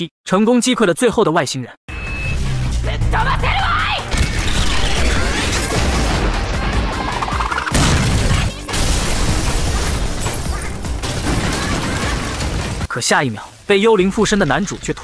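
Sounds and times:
dramatic background music: 0:01.9 - 0:12.9
blast: 0:04.1 - 0:12.9
cartoon crashing impacts: 0:04.1 - 0:12.9.

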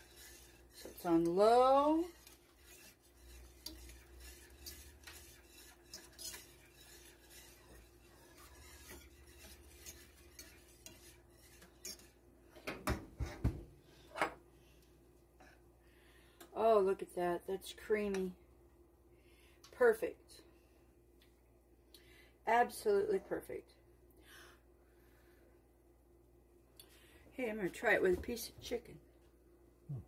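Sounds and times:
whisk clinking against metal pan: 0:00.0 - 0:12.2
whisk scraping in pan: 0:00.0 - 0:12.3.

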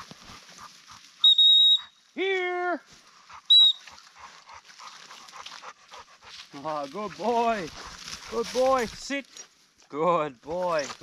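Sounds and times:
dog whistle blasts: 0:01.2 - 0:02.0, 0:03.5 - 0:03.9.

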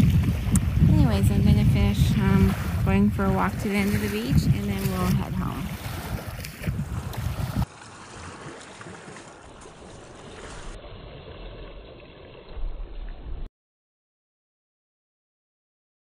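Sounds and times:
wind buffeting microphone: 0:00.0 - 0:07.7.

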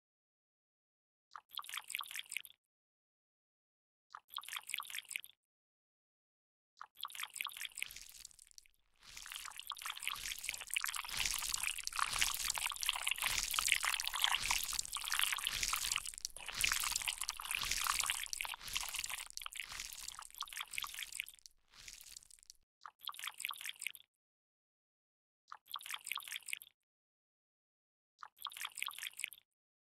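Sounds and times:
liquid dripping and squelching: 0:06.9 - 0:24.0.

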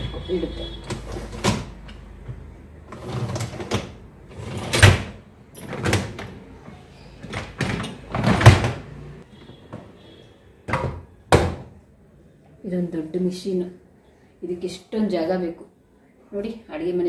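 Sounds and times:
dishwasher racks rattling: 0:02.9 - 0:06.4, 0:07.2 - 0:08.9.

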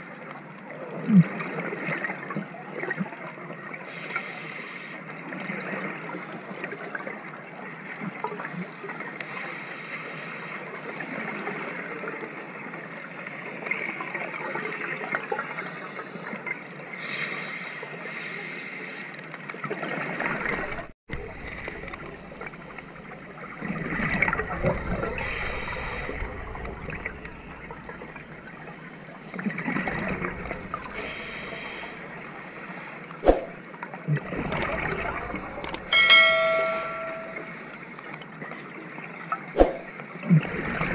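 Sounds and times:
crackly underwater background: 0:00.0 - 0:40.9
regulator breathing hiss: 0:03.9 - 0:05.0, 0:09.2 - 0:10.6, 0:30.8 - 0:33.1.

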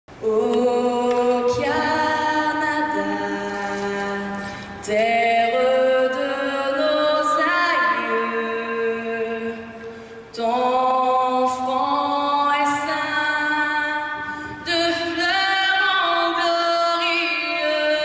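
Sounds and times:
a cappella choir singing: 0:00.2 - 0:09.5.

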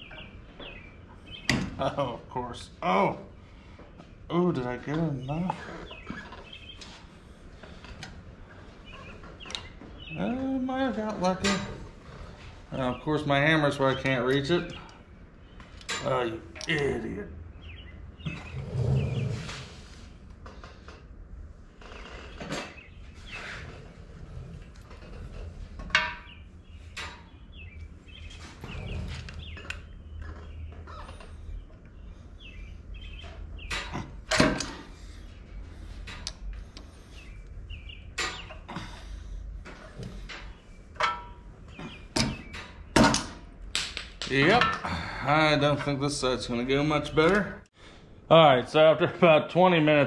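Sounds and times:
metal parts clunking and scraping: 0:11.1 - 0:12.0, 0:21.9 - 0:27.3, 0:33.1 - 0:37.3, 0:38.1 - 0:43.5.

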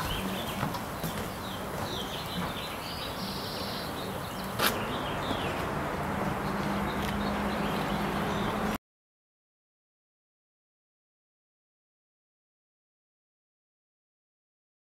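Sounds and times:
bird chirps: 0:00.0 - 0:05.7, 0:06.4 - 0:08.8.

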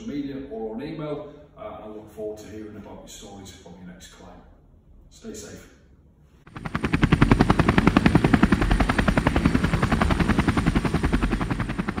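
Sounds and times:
helicopter rotor blades chopping: 0:06.5 - 0:12.0.

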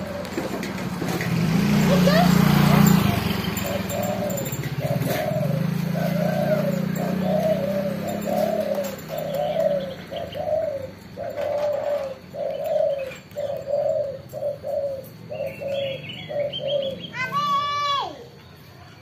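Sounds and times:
dove cooing: 0:00.0 - 0:17.3
high chirps: 0:01.7 - 0:11.4.

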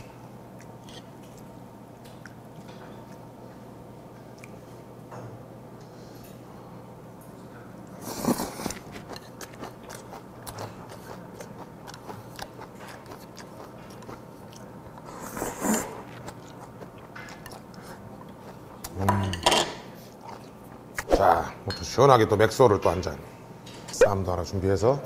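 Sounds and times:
wet chewing: 0:08.1 - 0:19.0.

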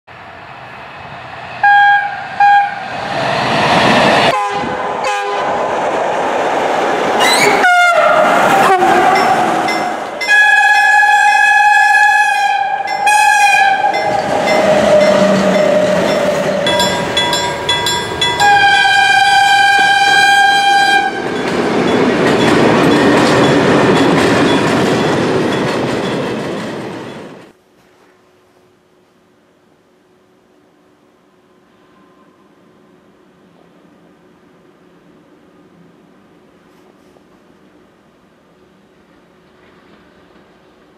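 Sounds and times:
rumble and clatter of passing train: 0:00.1 - 0:27.9, 0:28.8 - 0:40.9
train horn: 0:01.6 - 0:02.9, 0:04.3 - 0:05.6, 0:07.2 - 0:17.0, 0:18.3 - 0:21.3, 0:31.5 - 0:33.2.

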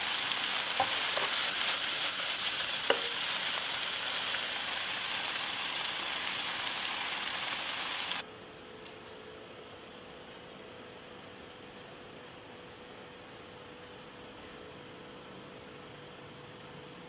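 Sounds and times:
food sizzling in a frying pan: 0:00.0 - 0:08.2.

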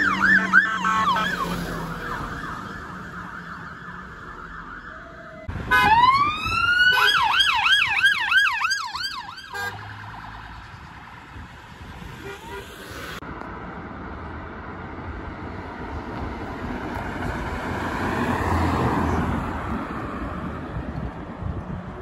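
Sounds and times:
police siren wailing and yelping: 0:00.0 - 0:10.6
siren yelping: 0:00.0 - 0:10.6.

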